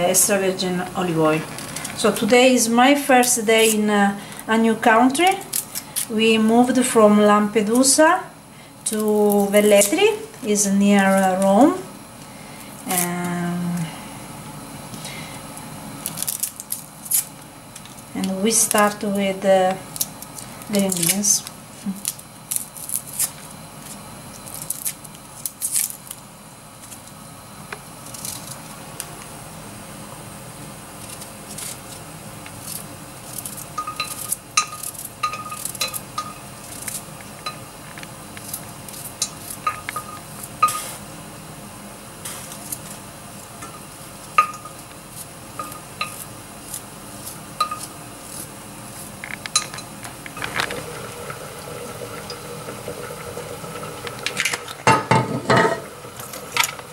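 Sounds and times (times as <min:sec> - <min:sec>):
oil pouring into a pan: 0:50.7 - 0:54.8.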